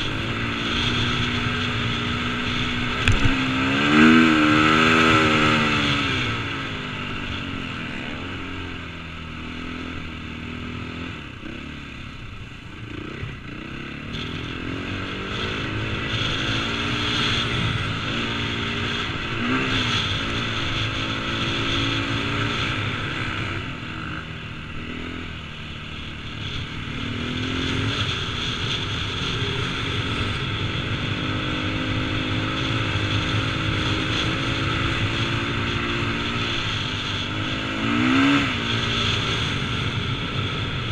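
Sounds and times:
motocross engine revving: 0.0 - 8.8, 26.8 - 40.8.

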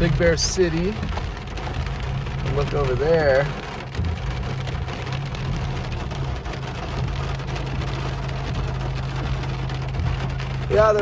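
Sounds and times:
low hum from car: 0.0 - 11.0
rain and hail on car roof: 0.0 - 11.0.

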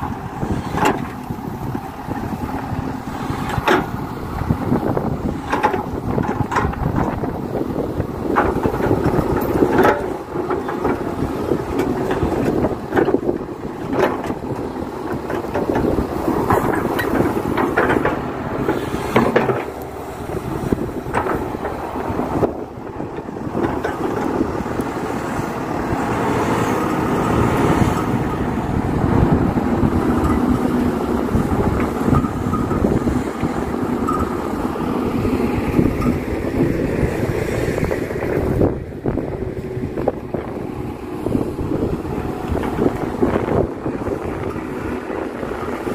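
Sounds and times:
excavator diesel engine under load: 0.0 - 45.9
knocks and scrapes: 0.4 - 4.5, 5.2 - 7.4, 8.3 - 22.5.

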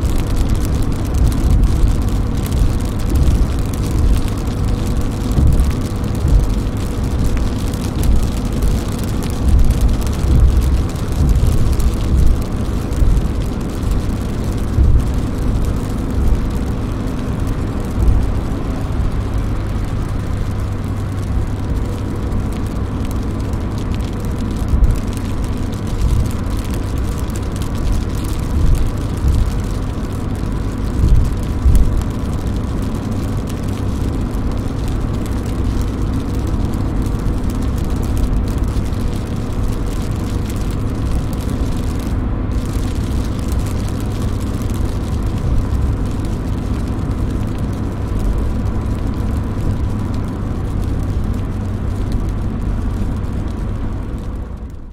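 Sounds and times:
heavy low thumps: 0.0 - 32.7
car rumble: 0.0 - 54.9
rain pattering on car roof: 0.0 - 54.9.

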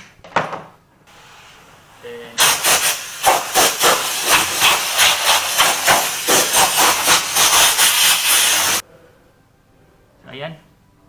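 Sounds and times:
air blower hissing: 1.1 - 8.8.

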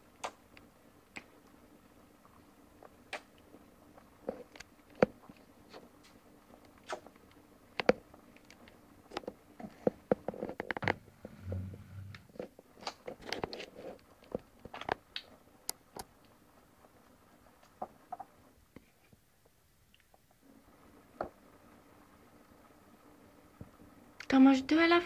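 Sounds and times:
baby chewing and mouth smacks: 2.8 - 3.4, 4.0 - 7.3.

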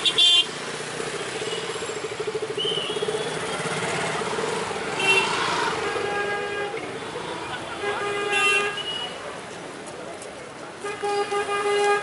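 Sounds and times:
street traffic: 0.0 - 12.0
motorcycle engine passing: 0.7 - 6.0.

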